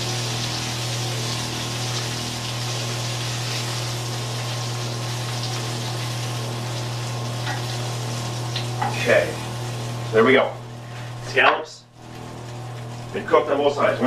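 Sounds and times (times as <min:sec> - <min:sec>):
scallops sizzling in a pan: 0:00.0 - 0:10.1.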